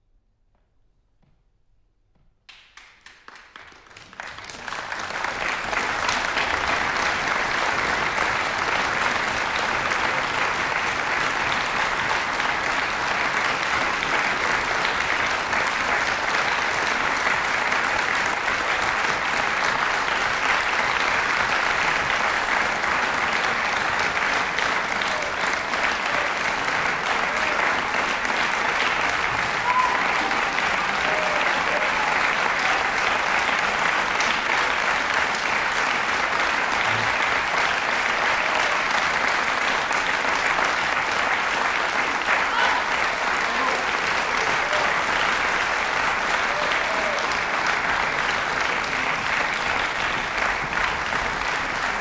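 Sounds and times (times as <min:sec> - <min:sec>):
audience applauding: 0:02.5 - 0:52.0.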